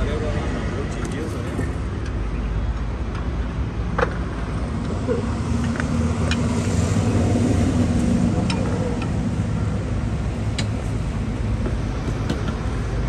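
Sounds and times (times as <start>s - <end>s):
road traffic rumble: 0.0s - 13.0s
passing engine hum: 4.3s - 13.0s.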